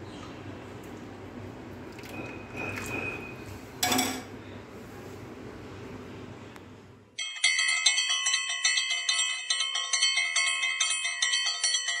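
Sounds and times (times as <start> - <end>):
bell chimes jingle: 7.2 - 12.0.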